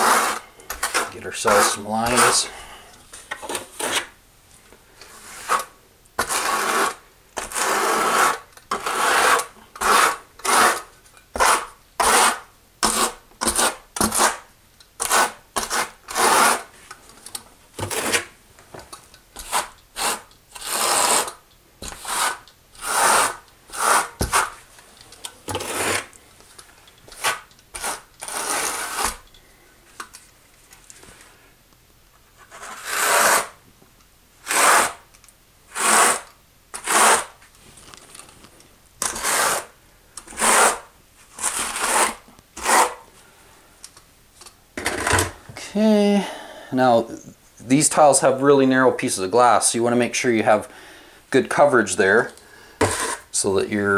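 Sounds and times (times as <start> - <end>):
trowel scraping mortar: 0.0 - 4.2, 5.0 - 16.8, 17.8 - 18.3, 19.4 - 24.7, 25.4 - 26.2, 27.1 - 29.3, 32.4 - 33.6, 34.4 - 35.1, 35.7 - 37.4, 39.0 - 43.1, 52.2 - 53.5.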